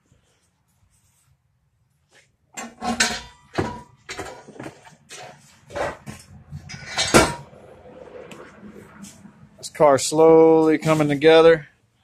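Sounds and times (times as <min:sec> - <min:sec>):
metal clanking on exhaust header: 0:02.6 - 0:07.5.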